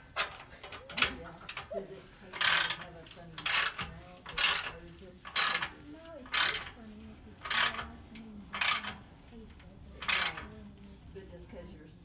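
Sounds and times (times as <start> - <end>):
ratchet wrench clicking: 0.0 - 1.7, 2.4 - 6.8, 7.4 - 7.9, 8.5 - 9.0, 10.0 - 10.5.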